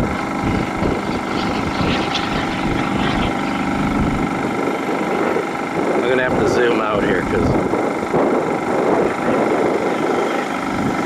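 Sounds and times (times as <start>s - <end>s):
model jet turbine engine running: 0.0s - 11.0s.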